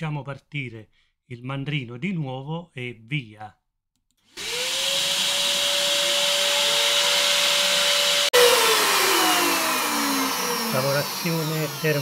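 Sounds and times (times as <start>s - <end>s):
router motor whine: 4.3s - 12.0s.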